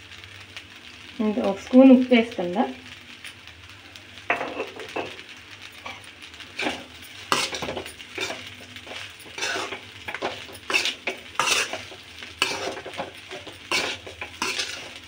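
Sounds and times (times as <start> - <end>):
spoon scraping metal pan: 6.6 - 15.0.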